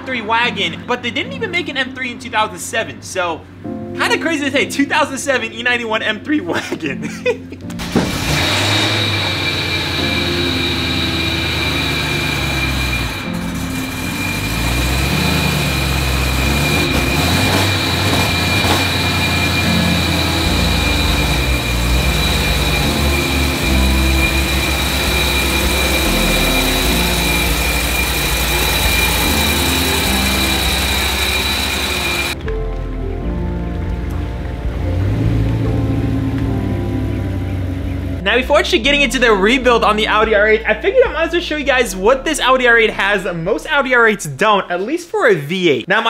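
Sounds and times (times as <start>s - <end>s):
car engine starting and idling: 7.6s - 44.5s
high whine: 7.8s - 44.6s.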